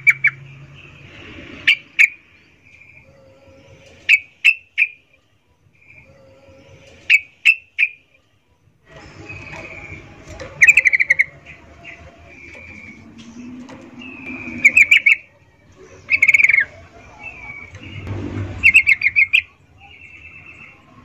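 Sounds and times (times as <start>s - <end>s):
soft whistled bird notes: 9.0s - 21.0s
bird chattering: 9.4s - 13.3s, 14.0s - 18.0s, 18.6s - 20.8s.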